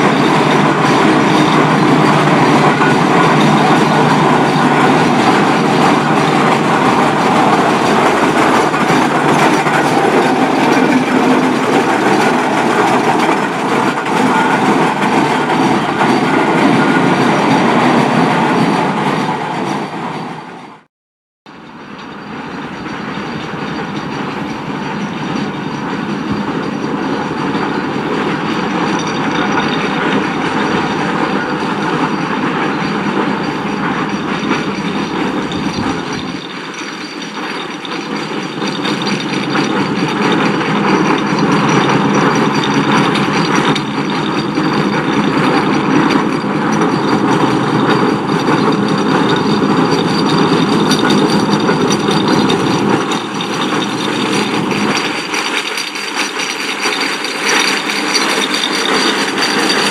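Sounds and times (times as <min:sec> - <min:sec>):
steam traction engine running: 0:00.0 - 0:20.9, 0:21.5 - 0:59.9.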